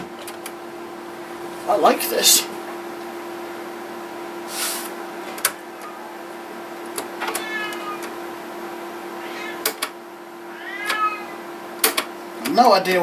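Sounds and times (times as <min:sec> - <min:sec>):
steady hum: 0:00.0 - 0:13.0
cat meowing: 0:07.2 - 0:08.2, 0:09.1 - 0:09.8, 0:10.4 - 0:11.5.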